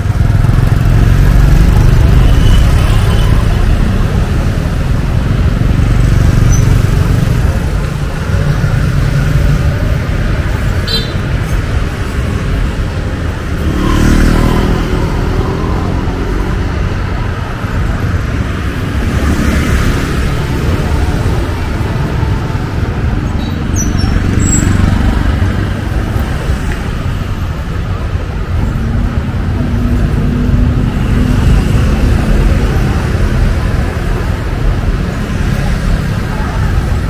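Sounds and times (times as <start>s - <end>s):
motorbike and car traffic passing: 0.0s - 37.0s
hubbub of voices: 14.3s - 37.0s.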